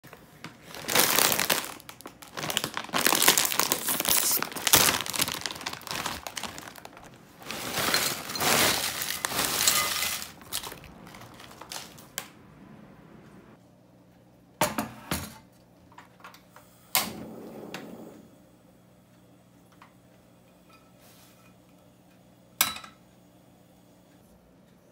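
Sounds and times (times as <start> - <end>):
plastic bag crinkling: 0.1 - 12.3
chips poured into glass bowl: 3.0 - 12.1.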